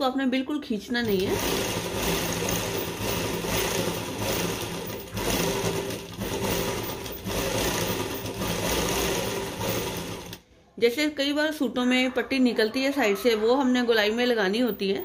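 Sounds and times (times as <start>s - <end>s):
sewing machine stitching: 1.0s - 10.4s.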